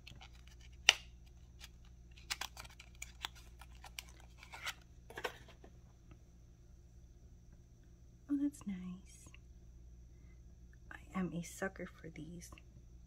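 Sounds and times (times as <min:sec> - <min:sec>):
packaging rustling: 0:00.0 - 0:05.6.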